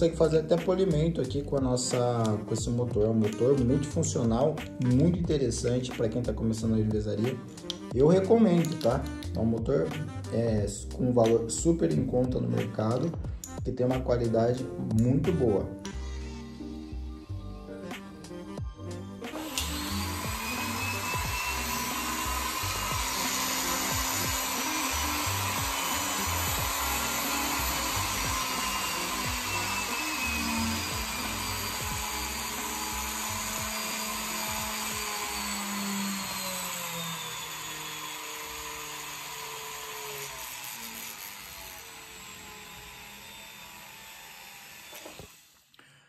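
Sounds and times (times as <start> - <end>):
flex-shaft motor spinning: 19.4 - 45.7.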